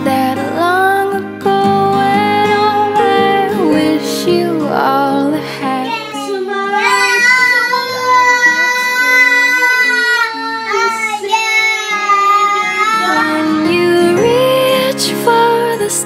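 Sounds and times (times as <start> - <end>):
soft acoustic pop song: 0.0 - 16.0
child singing high notes: 5.8 - 14.3.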